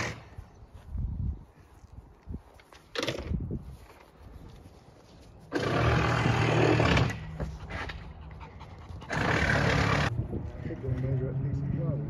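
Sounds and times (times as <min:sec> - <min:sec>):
puppy panting: 0:07.4 - 0:09.7.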